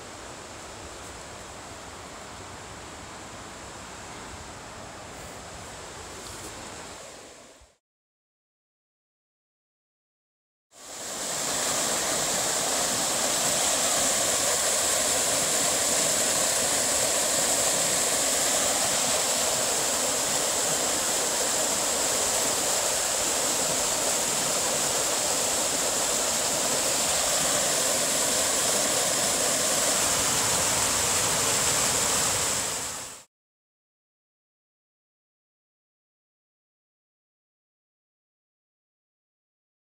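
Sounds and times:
creek rushing over rocks: 10.8 - 33.3.

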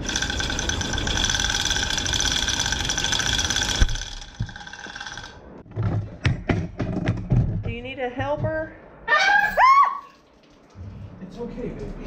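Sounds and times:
chain hoist rattle and whir: 0.0 - 5.4.

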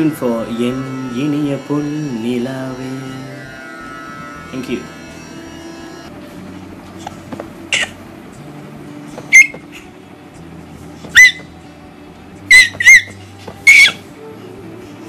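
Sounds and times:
baby squealing: 13.7 - 14.0.

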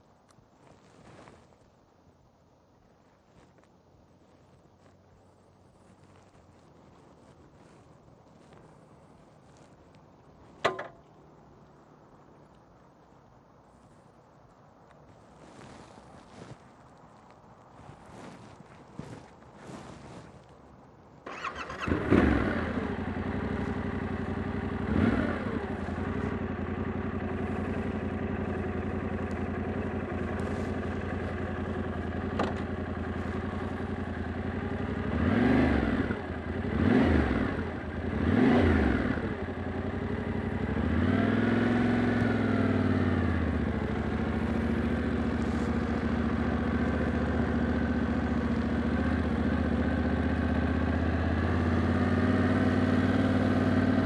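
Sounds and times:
motorcycle engine idling and revving: 10.5 - 11.1, 21.2 - 54.0.

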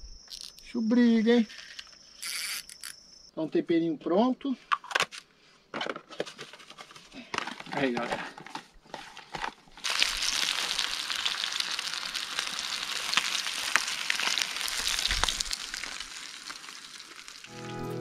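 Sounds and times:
fish frying in hot oil: 9.8 - 17.5.

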